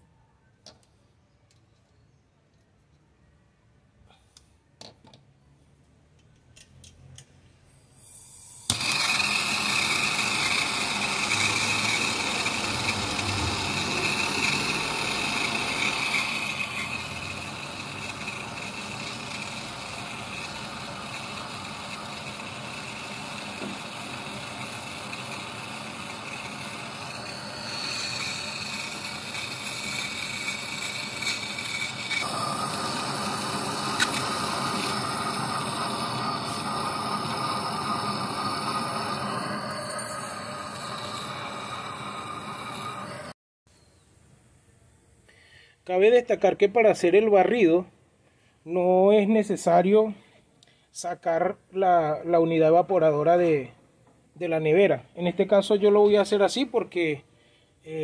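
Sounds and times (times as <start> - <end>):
gas torch igniting whoosh: 7.8 - 43.4
torch flame hissing: 8.0 - 43.4.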